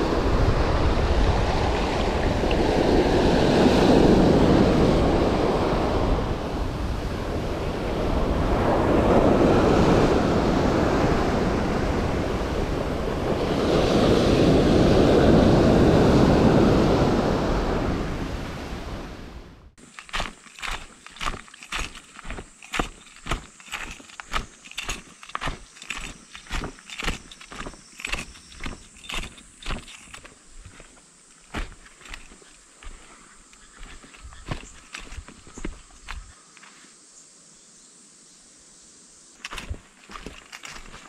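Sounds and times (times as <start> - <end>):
surf breaking on beach: 0.0 - 19.4
wind on microphone: 0.0 - 19.7
footsteps on dry leaves: 19.8 - 36.4, 39.4 - 41.0.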